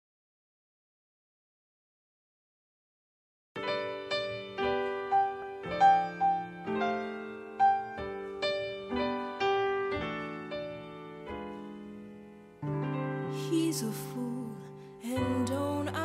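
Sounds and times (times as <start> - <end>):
slow jazz piano: 3.6 - 16.0.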